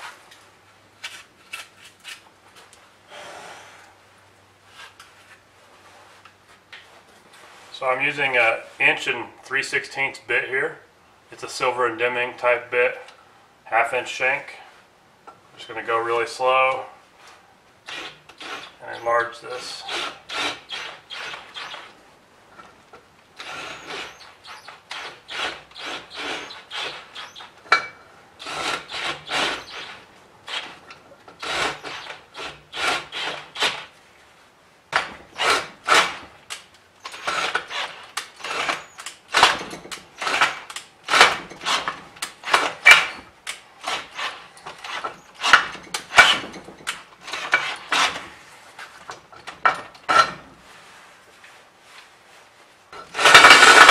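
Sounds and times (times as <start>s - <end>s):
drill cutting aluminium: 17.9s - 18.8s, 19.8s - 21.9s, 23.4s - 27.4s, 28.4s - 30.7s, 31.4s - 33.8s, 37.1s - 43.2s.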